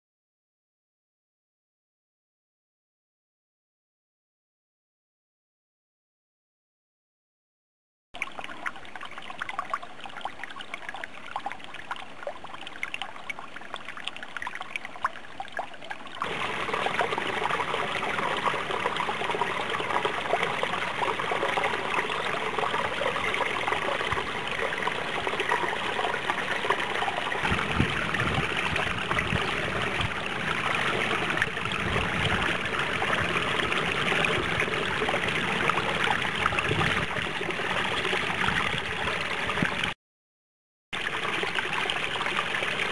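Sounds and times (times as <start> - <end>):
stream trickling over rocks: 8.2 - 40.0, 41.0 - 42.9.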